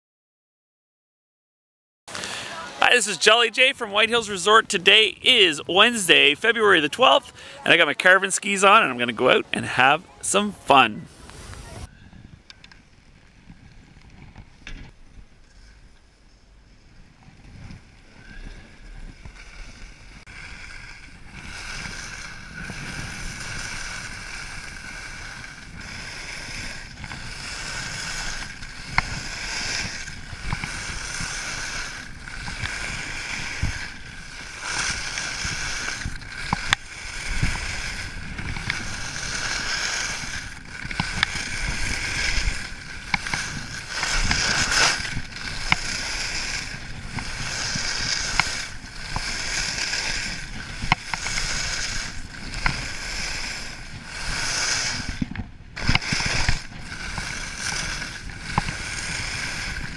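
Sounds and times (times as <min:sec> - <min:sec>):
skis hissing and scraping on snow: 0:02.1 - 0:11.9, 0:16.7 - 0:59.9
wind buffeting microphone: 0:20.1 - 0:59.9.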